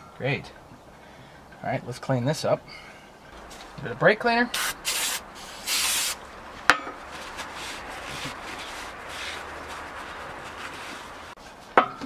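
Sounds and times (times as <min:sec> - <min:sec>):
paper towel rubbing metal hub: 0:07.2 - 0:11.4.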